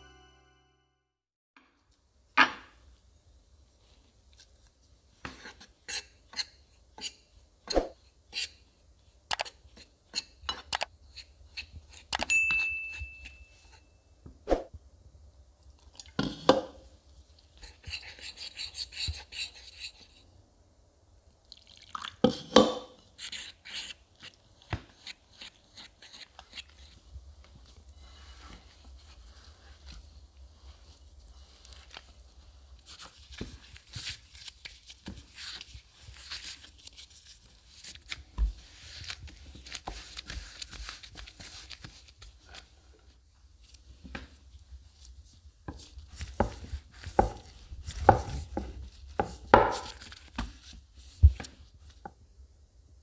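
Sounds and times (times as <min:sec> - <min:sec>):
hands kneading dough: 0:23.0 - 0:52.4.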